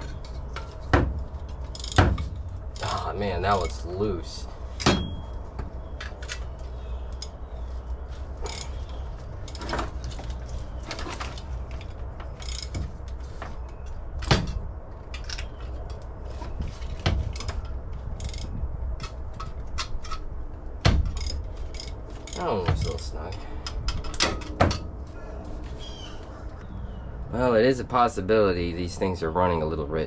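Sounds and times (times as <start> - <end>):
steady low hum: 0.0 - 30.0
ratchet clicking on metal: 8.4 - 9.7, 12.3 - 12.8, 17.3 - 20.2, 21.1 - 22.4.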